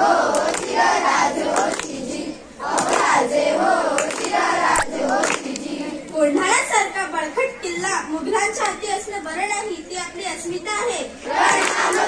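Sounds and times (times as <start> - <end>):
children singing in unison: 0.0 - 6.1, 11.2 - 12.0.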